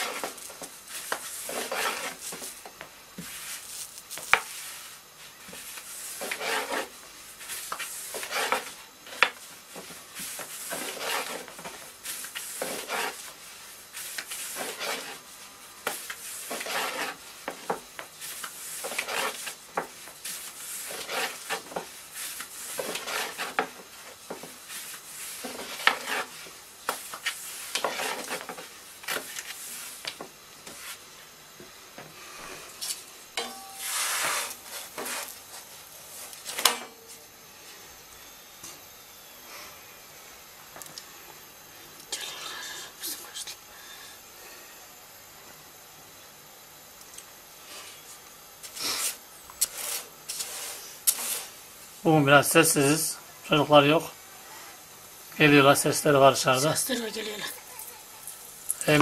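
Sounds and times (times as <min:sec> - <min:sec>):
rolling pin rolling dough: 0:00.0 - 0:31.0, 0:33.4 - 0:36.7.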